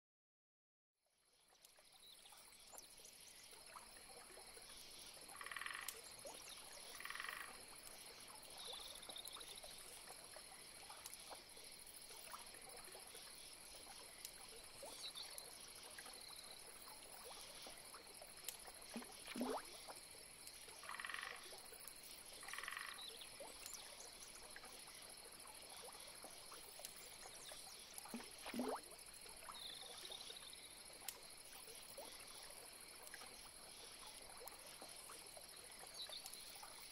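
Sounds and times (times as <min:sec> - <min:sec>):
frogs croaking: 0:01.9 - 0:36.9
downward sliding frog calls: 0:05.4 - 0:06.0, 0:07.0 - 0:07.6, 0:20.8 - 0:21.5, 0:22.4 - 0:23.0.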